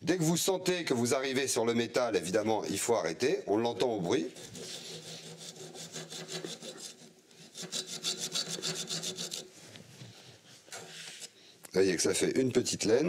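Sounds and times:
hacksaw rasping on pipe: 0:04.3 - 0:09.6.

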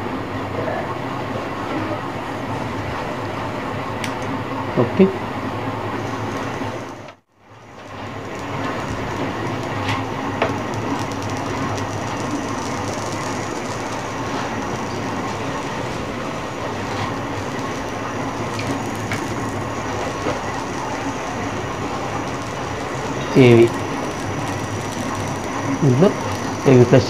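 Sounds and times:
low hum: 0:00.0 - 0:27.0
television static hiss: 0:00.0 - 0:27.0
faint clicks: 0:07.8 - 0:26.8.

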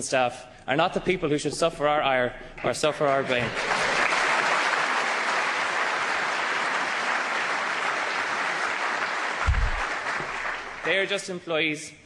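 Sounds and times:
audience applauding: 0:02.6 - 0:11.2
dull low thump: 0:09.5 - 0:09.9.

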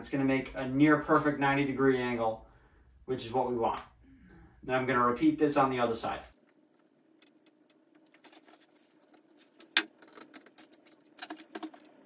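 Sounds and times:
hardware clicking and rattling: 0:09.0 - 0:12.0.

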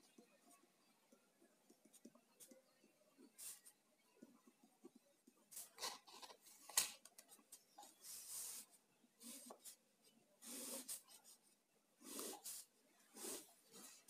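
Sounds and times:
pen scratching on paper: 0:10.4 - 0:14.0.

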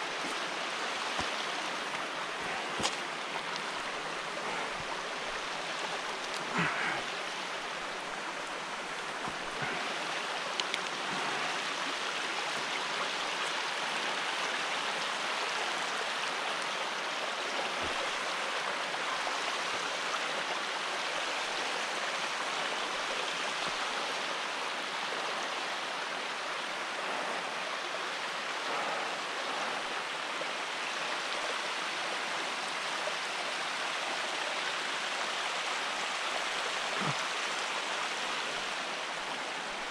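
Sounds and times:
running water rushing: 0:00.0 - 0:39.9.

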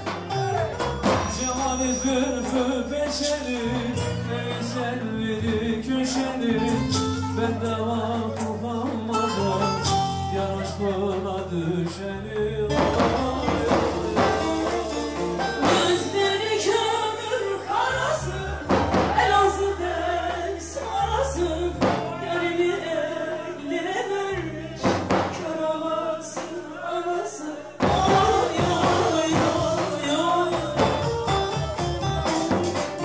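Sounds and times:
steady percussion beat: 0:00.0 - 0:07.8, 0:12.7 - 0:17.4, 0:27.8 - 0:33.0
amplified lute and keyboard: 0:00.0 - 0:33.0
woman singing into microphone: 0:01.3 - 0:31.7.

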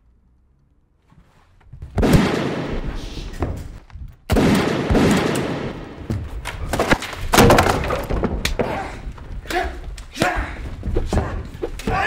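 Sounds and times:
knocks and thuds: 0:06.0 - 0:12.0.

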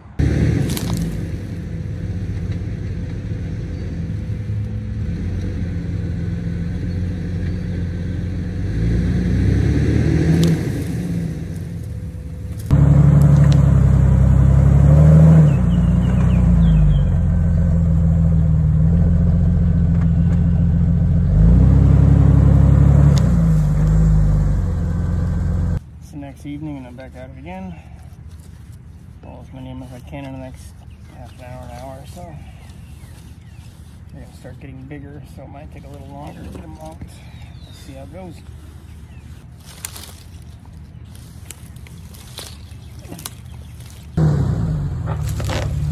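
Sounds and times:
car engine running: 0:00.0 - 0:25.8, 0:41.5 - 0:45.9.

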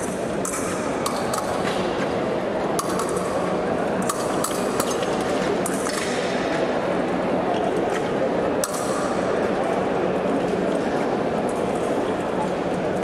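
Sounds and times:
fencing blades clinking: 0:00.0 - 0:01.8, 0:02.8 - 0:06.2.

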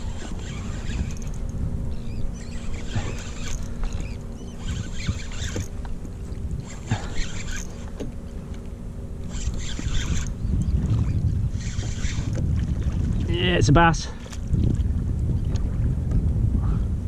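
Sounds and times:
fishing reel being wound: 0:00.0 - 0:05.8, 0:06.6 - 0:08.0, 0:09.2 - 0:12.4
steady low rumble: 0:00.0 - 0:17.0.

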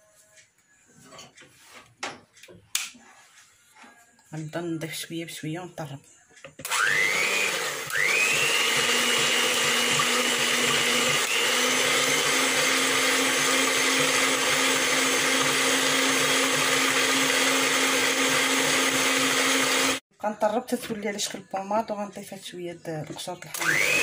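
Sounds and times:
electric hand mixer whining: 0:06.6 - 0:20.0, 0:23.5 - 0:24.0.

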